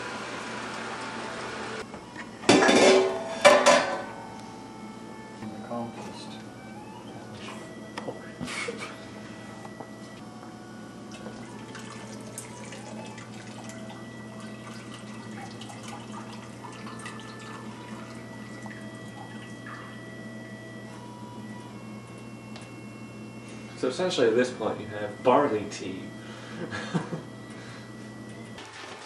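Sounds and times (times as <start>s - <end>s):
steady low hum: 1.7s - 28.6s
liquid dripping and trickling: 11.2s - 19.6s.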